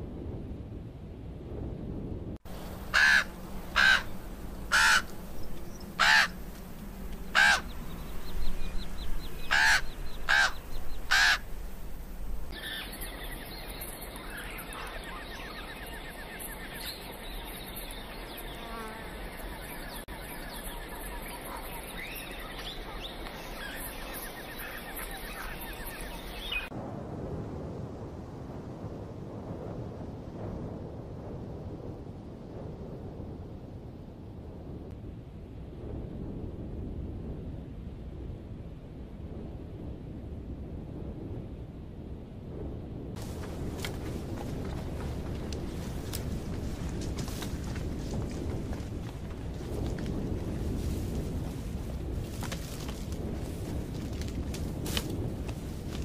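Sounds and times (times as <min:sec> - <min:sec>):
crows cawing: 0:02.8 - 0:05.3, 0:05.9 - 0:06.5, 0:07.2 - 0:07.8, 0:09.4 - 0:11.6
small birds chirping: 0:07.1 - 0:11.5, 0:12.6 - 0:26.7.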